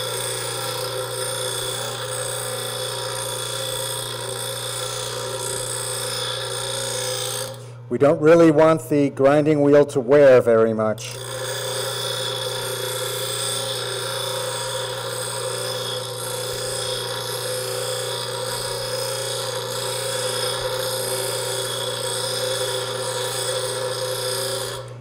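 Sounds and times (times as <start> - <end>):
bench grinder motor hum: 0.0 - 7.9, 11.0 - 25.0.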